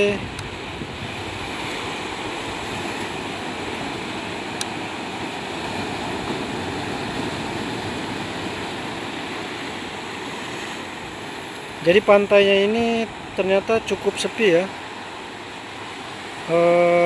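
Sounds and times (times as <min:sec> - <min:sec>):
ocean surf: 0:00.0 - 0:17.0
wind: 0:00.0 - 0:17.0.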